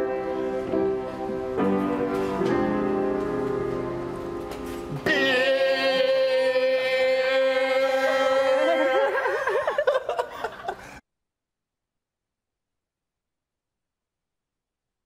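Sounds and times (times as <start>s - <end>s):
piano music: 0.0s - 7.4s
person singing a long note: 4.9s - 9.4s
wavering laughing voices: 7.4s - 11.0s.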